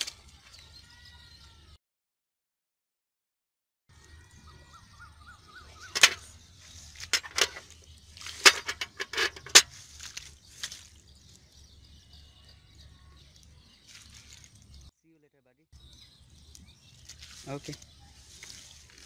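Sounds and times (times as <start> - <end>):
bird trilling: 4.2 - 9.8.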